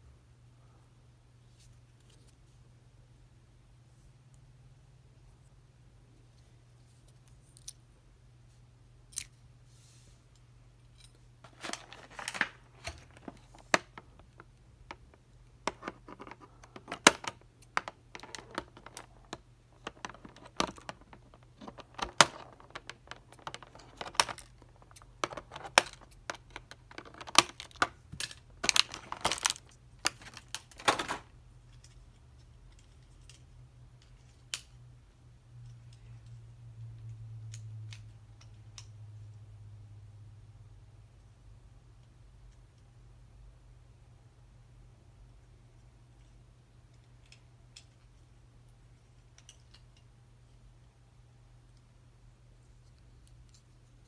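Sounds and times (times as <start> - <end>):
plastic crinkling: 11.5 - 14.5, 15.7 - 27.9, 28.5 - 31.2.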